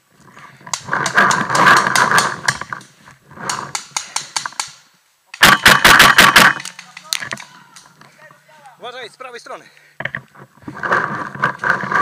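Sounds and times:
twigs snapping: 6.4s - 8.1s.

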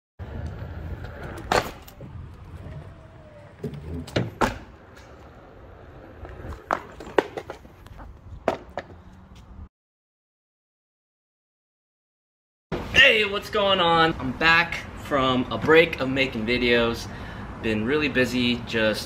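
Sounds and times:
board rolling over pavement: 0.2s - 9.2s.

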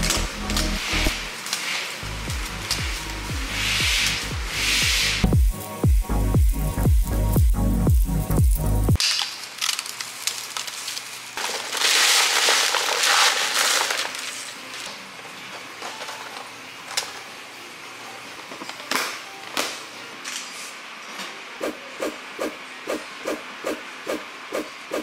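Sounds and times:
pieces clacking into plastic tub: 9.0s - 14.6s.

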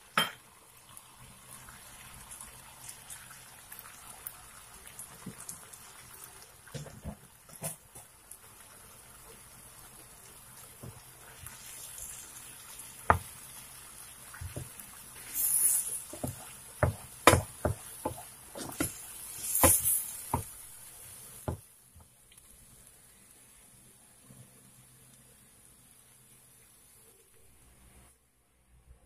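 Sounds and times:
light sizzle: 0.0s - 28.9s
wooden spatula scraping frying pan: 15.3s - 20.5s.

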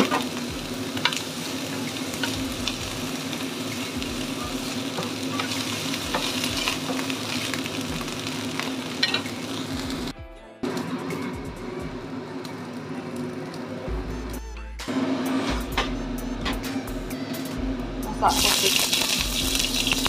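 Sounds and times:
vegetables sizzling in a frying pan: 0.0s - 10.1s, 18.2s - 20.0s.

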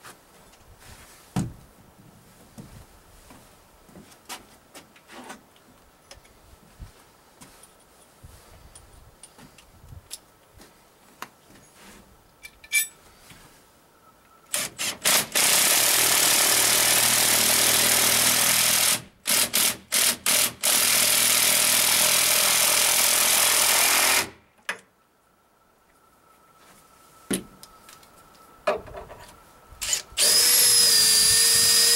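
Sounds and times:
cordless drill running: 14.6s - 24.3s, 29.8s - 31.9s.

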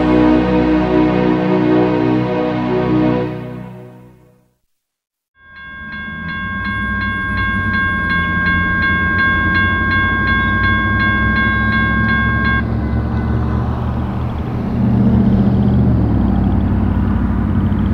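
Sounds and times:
railroad crossing bell ringing: 5.4s - 14.9s
diesel locomotive rumble: 5.5s - 17.9s.

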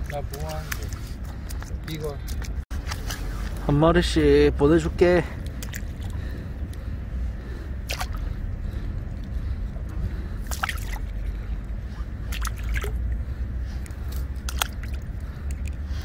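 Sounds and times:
fish splashing in water: 7.8s - 8.3s, 10.4s - 11.4s, 12.0s - 13.0s, 13.9s - 16.0s.

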